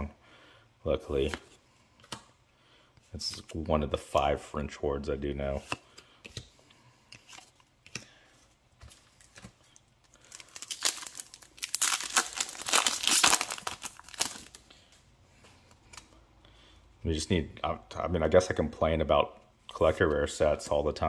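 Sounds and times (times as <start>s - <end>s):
foil wrapper tearing and crinkling: 10.2s - 14.6s.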